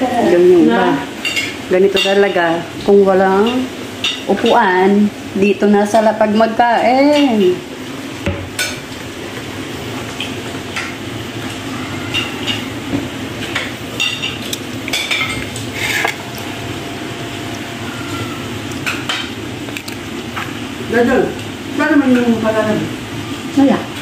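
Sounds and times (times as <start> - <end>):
steady background hum: 0.0 - 24.0
plates and bowls clinking: 10.0 - 16.8, 18.7 - 20.5.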